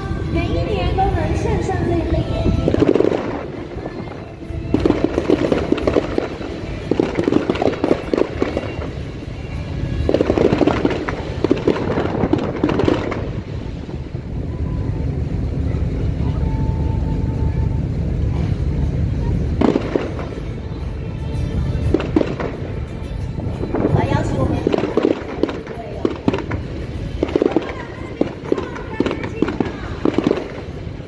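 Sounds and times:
fireworks crackling pops: 2.0s - 14.8s, 18.2s - 31.0s.

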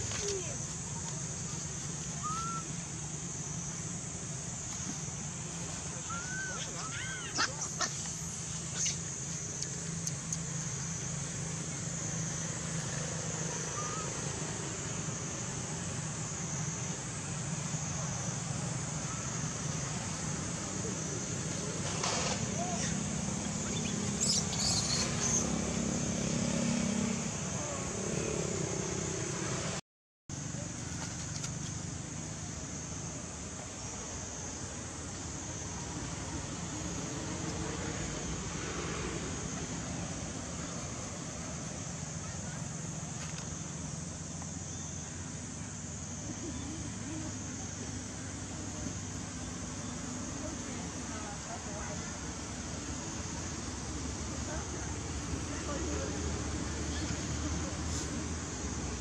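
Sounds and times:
high hiss: 0.0s - 28.7s
low engine-like hum: 0.0s - 29.8s, 30.4s - 59.0s
outdoor background hiss and rumble: 0.0s - 59.0s
baby monkey squeak: 23.6s - 25.4s.

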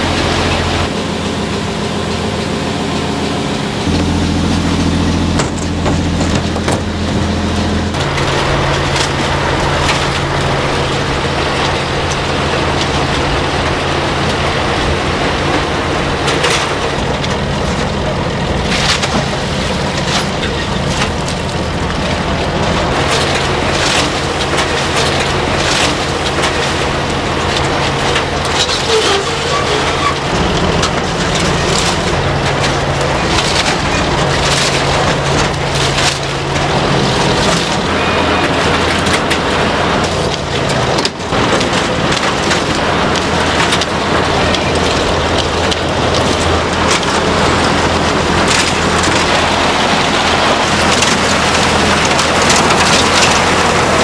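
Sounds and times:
rushing clattering noise: 0.0s - 54.0s
motor running: 3.6s - 15.2s.

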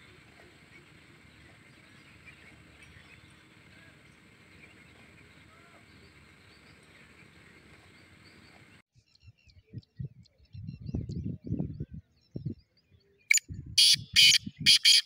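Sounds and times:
distant bird chirps: 0.0s - 15.0s.

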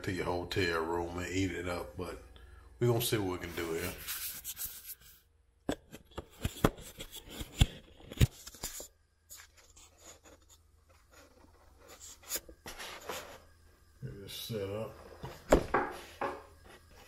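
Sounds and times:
scratchy handling noise: 3.4s - 5.2s, 5.9s - 13.5s.

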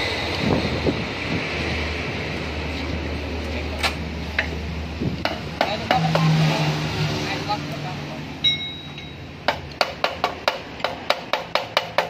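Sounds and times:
metal tools clinking: 8.4s - 9.2s.

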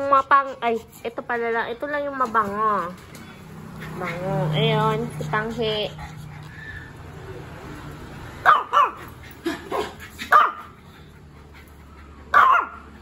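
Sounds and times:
dog barking sharply: 8.4s - 9.0s, 9.7s - 10.7s, 12.3s - 12.8s.

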